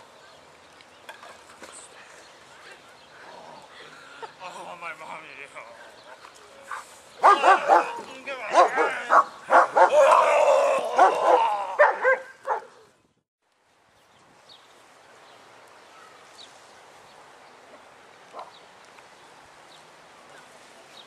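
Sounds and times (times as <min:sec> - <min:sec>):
faint outdoor background noise: 0:00.0 - 0:21.0
dog barking and yelping: 0:06.1 - 0:10.1, 0:11.0 - 0:12.8.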